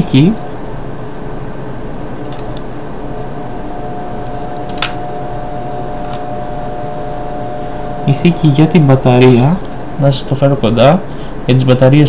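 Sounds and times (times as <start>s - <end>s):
background hum and hiss: 0.0s - 12.0s
sharp click: 4.6s - 5.0s.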